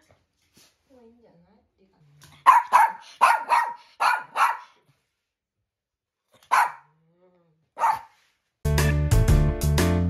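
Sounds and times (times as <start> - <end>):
small dog barking: 2.4 - 4.8, 6.4 - 6.9, 7.8 - 8.2.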